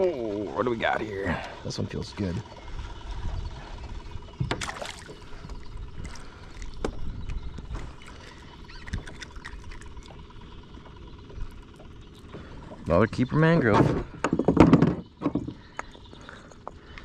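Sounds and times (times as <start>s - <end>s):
water splashing and trickling: 4.5s - 10.3s.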